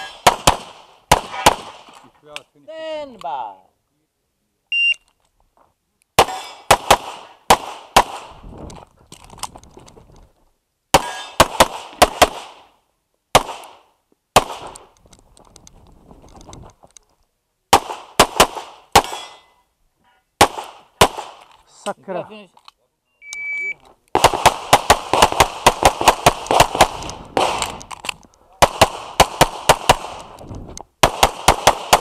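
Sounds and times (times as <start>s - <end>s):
pistol shots: 0.0s - 1.9s, 6.2s - 8.3s, 13.3s - 13.8s, 20.4s - 21.4s, 24.2s - 27.8s, 28.6s - 30.3s, 31.0s - 32.0s.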